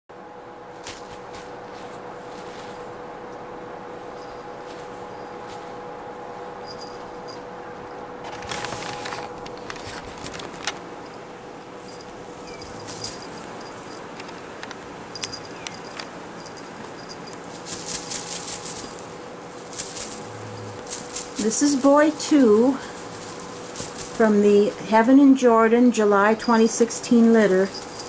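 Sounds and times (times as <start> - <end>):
faint steady hum: 0.1 - 28.0
mylar streamers crinkling: 8.2 - 10.9, 17.4 - 25.0, 27.0 - 28.0.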